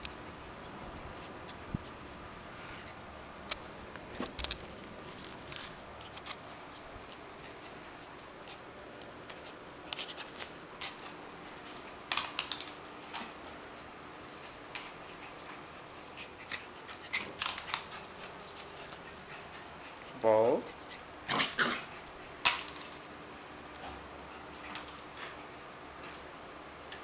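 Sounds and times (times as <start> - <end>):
puppy claws clicking on tile: 6.0 - 13.6, 14.2 - 23.0.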